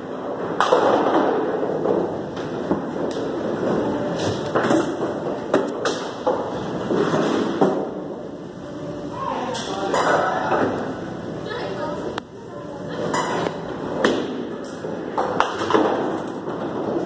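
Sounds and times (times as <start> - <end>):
bowling balls and pins clattering: 0.0 - 8.2, 13.0 - 17.0.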